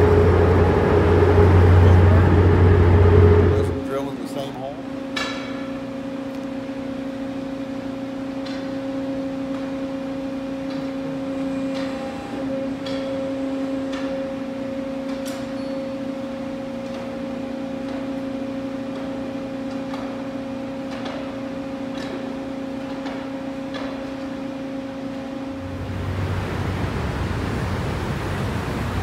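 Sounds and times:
mining machinery hum: 0.0s - 29.0s.

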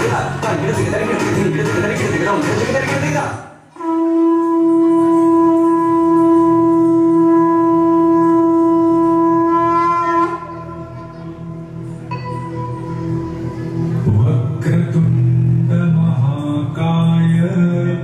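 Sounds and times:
dance music: 0.0s - 3.7s, 10.5s - 16.0s
conch shell blown: 3.7s - 13.8s.

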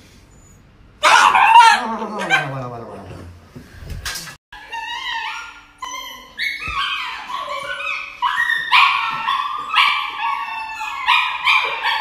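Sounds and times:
dog yelping and whining: 0.5s - 2.6s, 4.6s - 12.0s.

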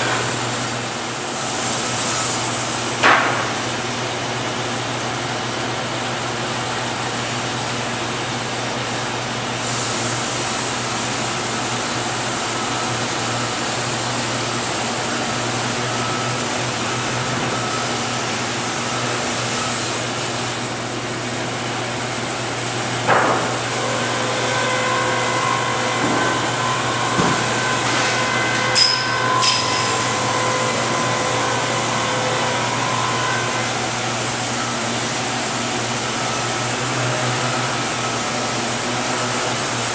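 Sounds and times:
sawmill motor humming: 10.8s - 39.9s.

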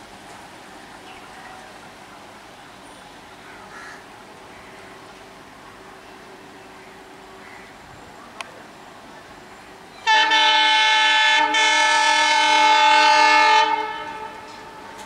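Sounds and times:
locomotive horn blast: 10.0s - 15.0s.

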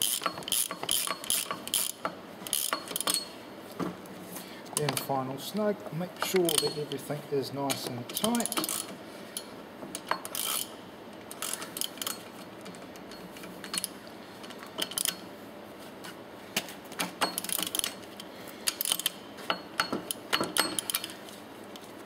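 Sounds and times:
socket ratchet clicking: 0.0s - 3.3s
small metallic clinks: 0.1s - 3.4s, 6.2s - 7.0s, 18.7s - 21.2s.

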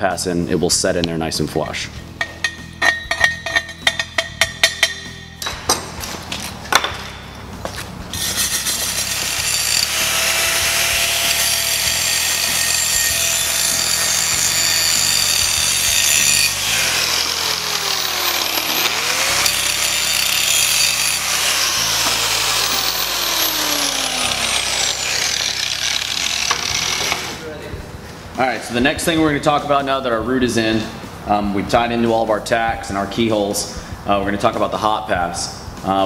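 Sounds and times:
angle grinder grinding metal: 8.1s - 27.4s.

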